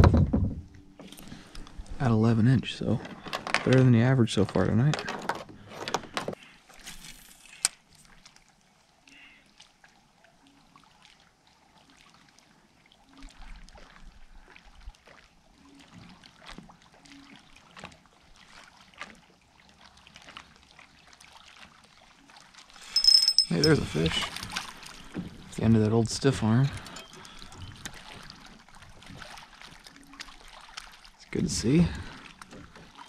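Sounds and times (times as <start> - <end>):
water lapping: 0.7 - 4.6, 7.6 - 33.0.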